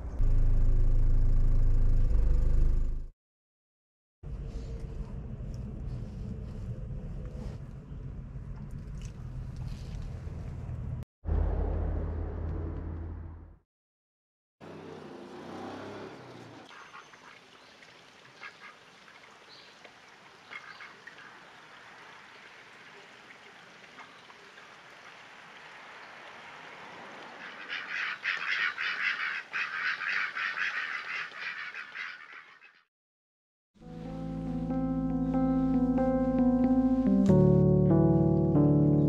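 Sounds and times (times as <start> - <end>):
ducks quacking: 27.3 - 32.9.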